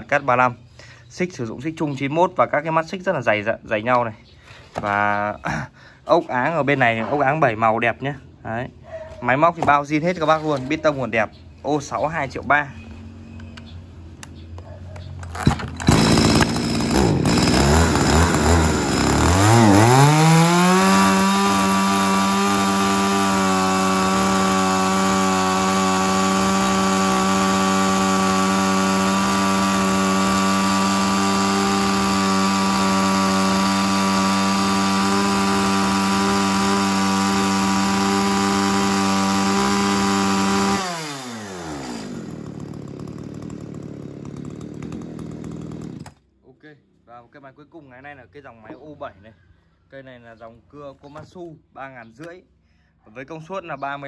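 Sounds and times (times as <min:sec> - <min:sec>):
chainsaw revving: 0:15.2 - 0:46.2.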